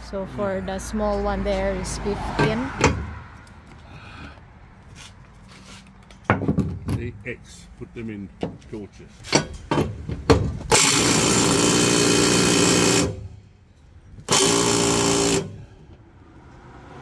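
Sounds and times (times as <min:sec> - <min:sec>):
power driver running: 0:10.7 - 0:13.4, 0:14.2 - 0:15.7.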